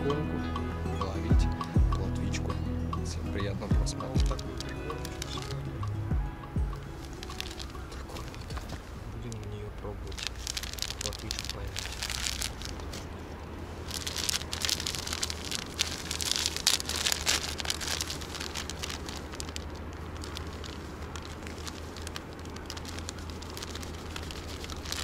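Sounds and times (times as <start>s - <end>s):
plastic bag crinkling: 4.0s - 5.7s, 6.8s - 25.0s.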